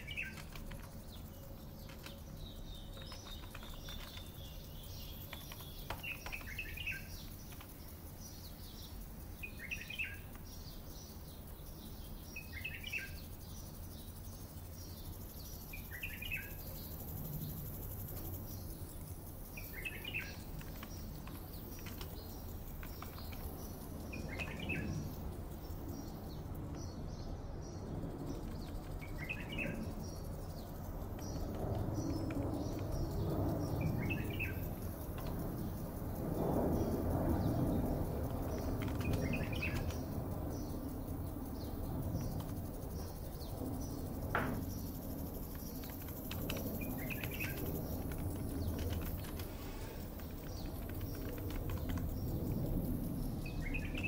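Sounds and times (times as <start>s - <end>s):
low background hum: 0.0s - 54.0s
songbird chirping: 0.0s - 54.0s.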